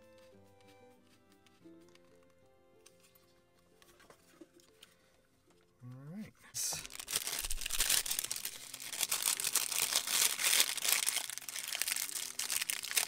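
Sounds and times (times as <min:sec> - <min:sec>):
plastic bag crinkling: 0:06.8 - 0:13.0.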